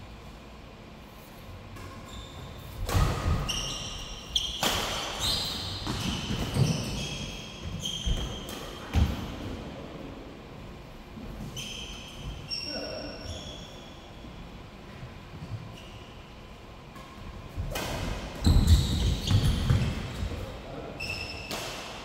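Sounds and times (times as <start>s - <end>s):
shoe squeaks: 2.0s - 8.6s, 11.4s - 14.3s, 15.7s - 16.4s, 18.4s - 19.9s, 21.0s - 21.6s.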